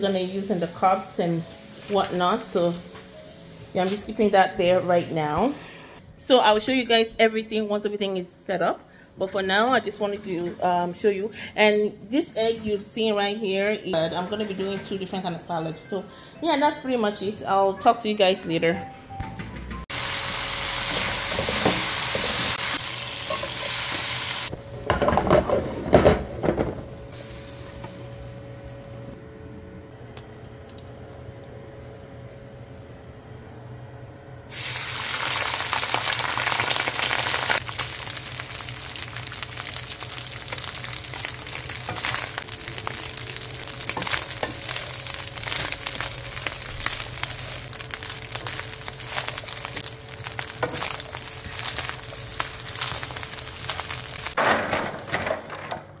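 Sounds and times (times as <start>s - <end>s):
food sizzling in a pan: 0.0s - 4.2s, 19.9s - 29.0s, 34.5s - 54.4s.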